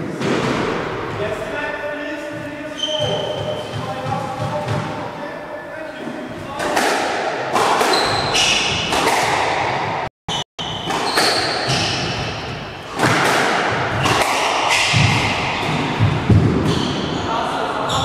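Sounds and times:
shoe squeaks on wooden floor: 2.4 - 4.0, 7.9 - 8.9
racket striking ball: 6.6 - 9.9, 10.7 - 17.0.

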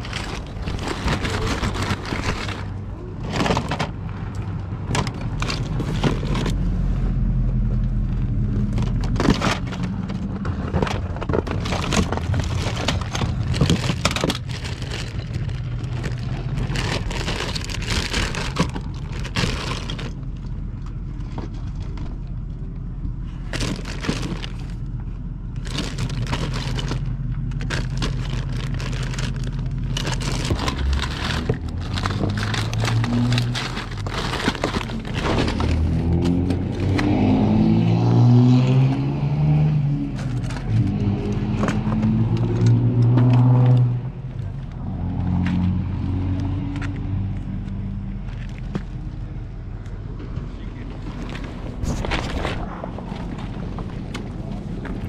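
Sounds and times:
car engine and road rumble: 0.0 - 55.0
clicks and rattles: 8.6 - 24.8.

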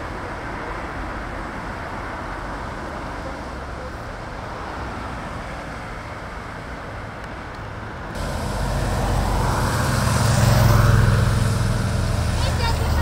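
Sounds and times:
road traffic noise: 0.0 - 13.0
motorcycle engine running: 8.2 - 13.0.

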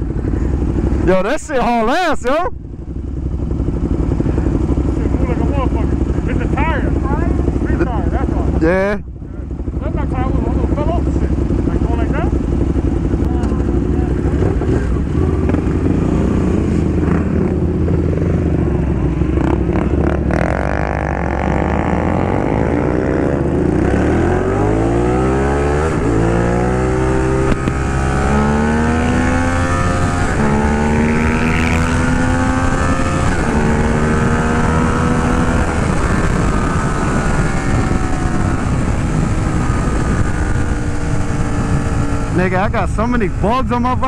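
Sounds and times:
motorcycle accelerating hard: 0.0 - 44.0
wind rushing: 14.3 - 43.6.

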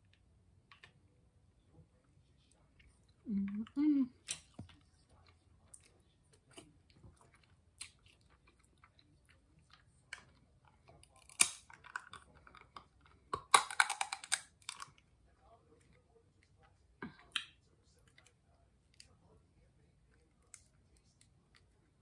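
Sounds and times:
chewing and mouth smacking: 2.4 - 15.0.

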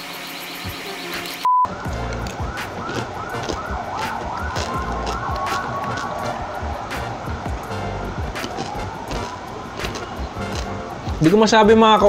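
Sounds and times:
siren-like warbling tone: 0.0 - 10.9
low pulsing bass: 1.7 - 11.2.

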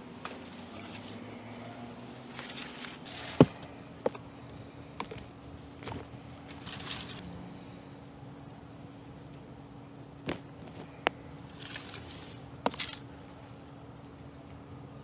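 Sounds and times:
grapevines and netting rustling: 0.0 - 7.8, 10.2 - 13.8
steady low hum: 0.0 - 15.0.

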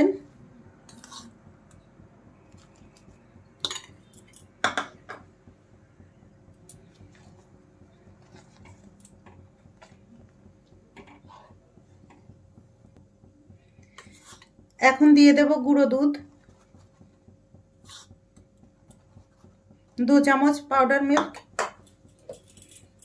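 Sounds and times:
spoon scraping a metal pan: 0.9 - 1.4, 13.9 - 14.6, 17.8 - 18.2.

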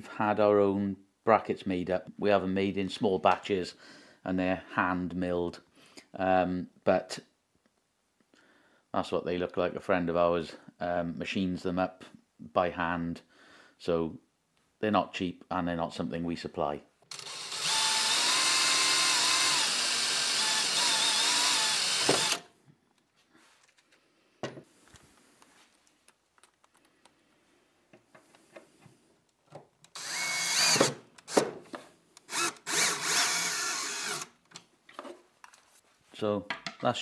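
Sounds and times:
cordless drill running: 17.1 - 22.5, 29.9 - 31.0, 32.3 - 34.4.

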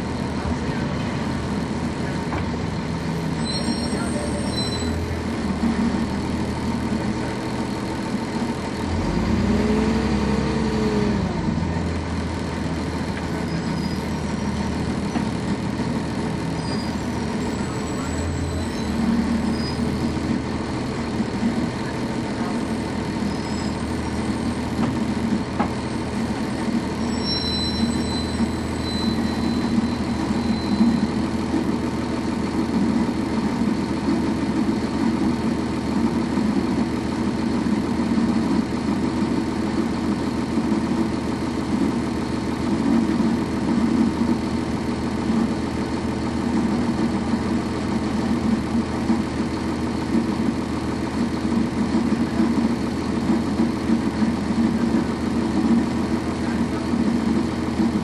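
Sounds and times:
bus diesel engine droning: 0.0 - 58.0.

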